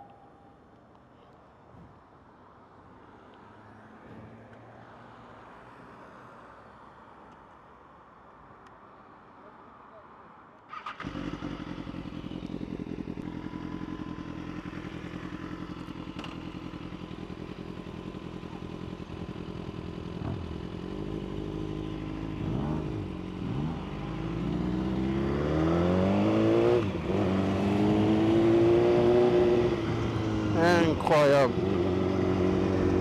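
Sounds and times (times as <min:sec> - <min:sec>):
motorcycle engine idling and revving: 0:10.7 - 0:33.0.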